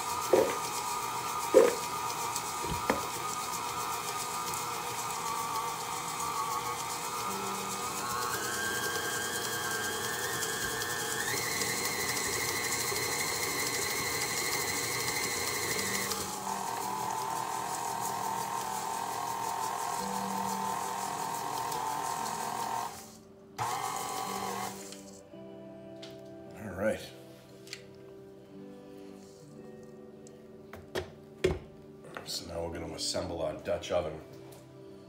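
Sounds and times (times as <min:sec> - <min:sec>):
stand mixer motor whine: 0:00.0 - 0:25.0.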